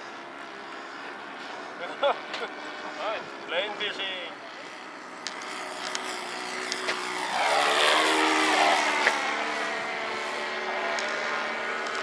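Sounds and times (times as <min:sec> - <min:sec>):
model plane motor and propeller: 0:00.0 - 0:12.0.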